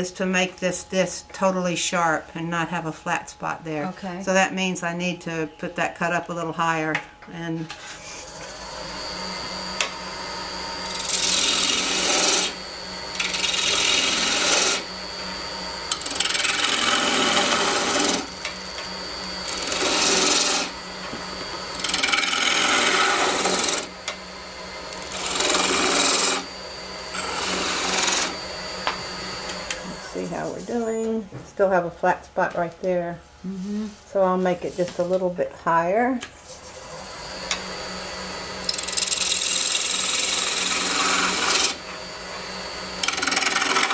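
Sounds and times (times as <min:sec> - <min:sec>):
lathe motor humming: 0:07.7 - 0:31.0, 0:36.6 - 0:43.9
gouge rasping on spinning wood: 0:10.8 - 0:14.9, 0:15.9 - 0:18.8, 0:19.4 - 0:20.8, 0:21.7 - 0:24.0, 0:24.9 - 0:28.4, 0:38.6 - 0:41.8, 0:43.0 - 0:43.9.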